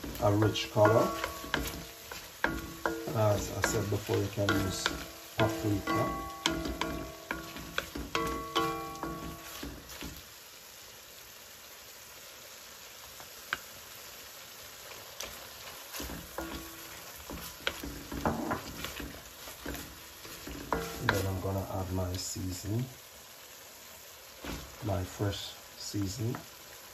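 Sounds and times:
utensil scraping a pan: 0.0 - 10.2, 15.9 - 21.5
chicken sizzling in a pan: 0.0 - 26.9.

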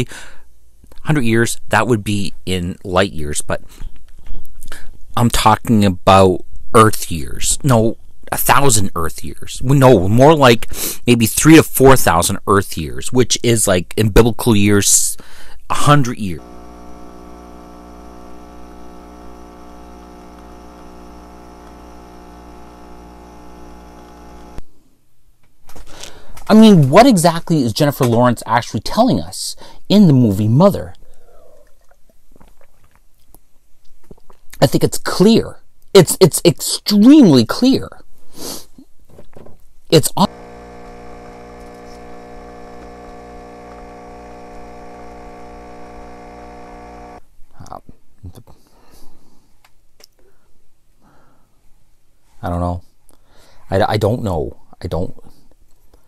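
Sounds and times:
coffee machine pump humming: 16.3 - 24.6, 40.2 - 47.2
coffee streaming into mug: 16.4 - 24.6, 40.3 - 47.2.

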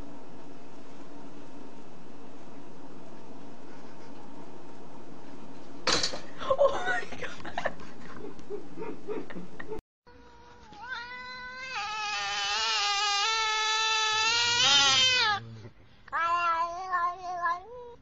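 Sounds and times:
cat meowing: 10.6 - 15.5, 16.1 - 18.0.

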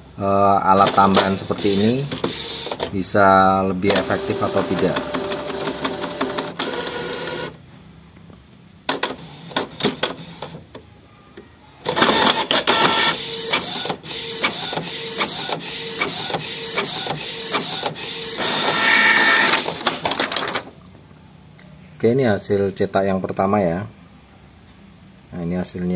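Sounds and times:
inkjet printer carriage whirring: 0.8 - 2.9, 3.9 - 7.6, 8.9 - 10.8, 11.8 - 20.6
printer clicks: 0.8 - 2.9, 3.9 - 7.5.

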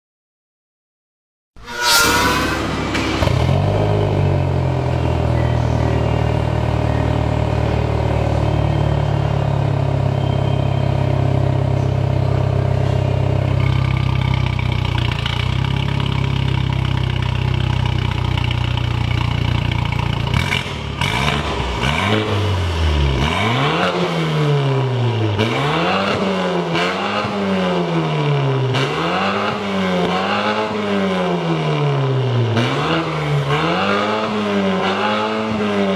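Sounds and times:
car engine revving in blips: 32.5 - 35.9.

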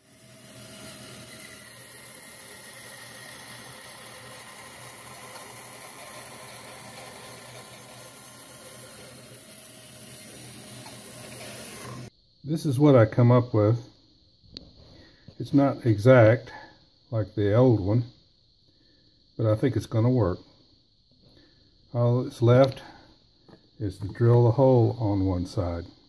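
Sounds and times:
band saw whirring: 0.0 - 12.1.

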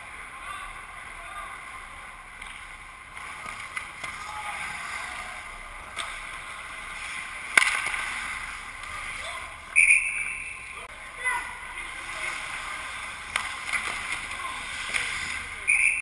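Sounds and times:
hockey sticks and puck clacking: 1.5 - 10.8, 11.4 - 16.0
skates scraping on ice: 1.6 - 9.8, 11.4 - 15.9
loud crack: 7.4 - 9.0.

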